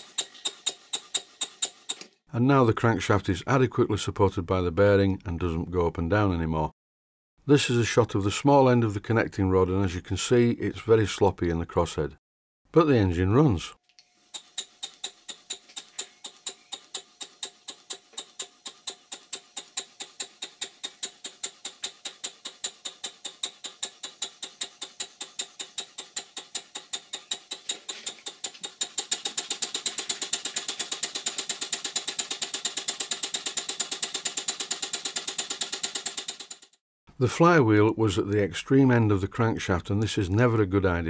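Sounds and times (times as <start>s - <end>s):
model steam engine clicking beat: 0.0s - 2.0s, 14.3s - 36.8s.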